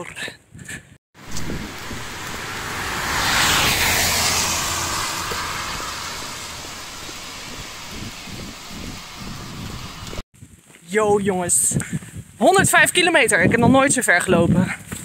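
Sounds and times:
car driving past: 1.2s - 10.2s.

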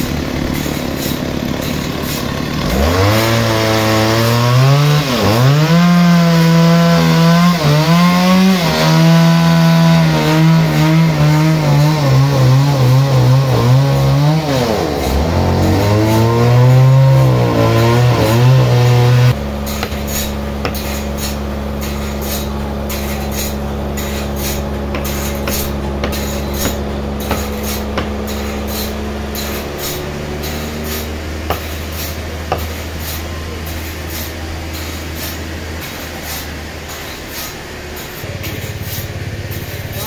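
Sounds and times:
engine drone: 0.0s - 40.0s
sharp knocks: 17.3s - 33.9s.

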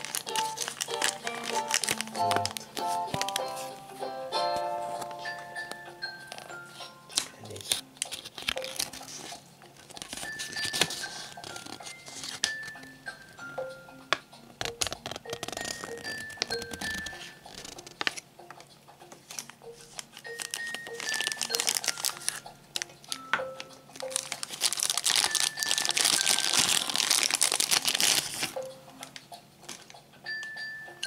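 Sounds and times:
plastic bag crinkling: 0.0s - 3.8s, 6.2s - 12.7s, 14.7s - 18.2s, 19.3s - 28.6s
soft chiming melody: 1.0s - 7.6s, 10.3s - 14.5s, 19.6s - 24.4s, 28.5s - 31.0s.

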